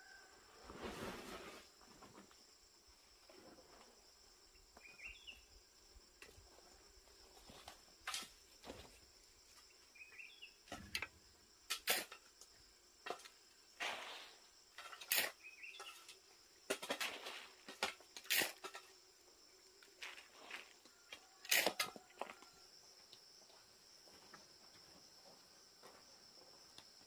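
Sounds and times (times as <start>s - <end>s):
hoe scraping stony dirt: 0.6s - 1.9s, 13.8s - 19.0s.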